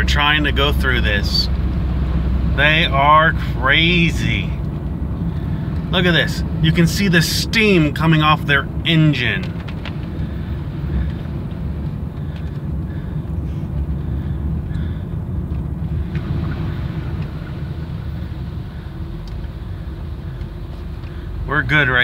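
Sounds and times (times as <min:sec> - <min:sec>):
vehicle rumble on wet road: 0:00.0 - 0:22.0.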